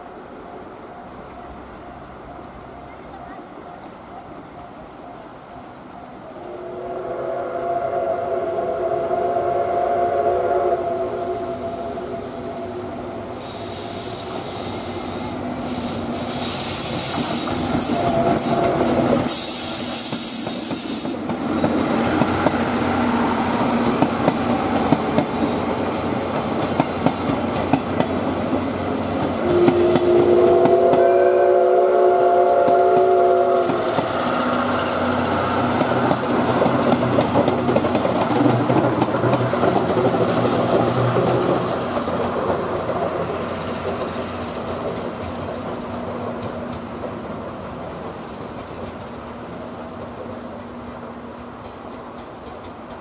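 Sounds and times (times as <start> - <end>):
train wheels clicking over rail joints: 0.0 - 8.7, 12.8 - 53.0
steam locomotive whistle: 6.4 - 21.3, 29.4 - 36.1.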